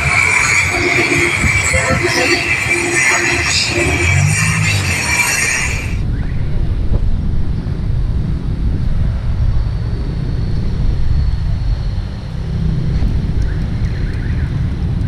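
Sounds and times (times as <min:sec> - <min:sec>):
faint high whine: 0:00.0 - 0:06.8
road traffic: 0:00.0 - 0:15.0
wind rumbling on microphone: 0:00.0 - 0:15.0.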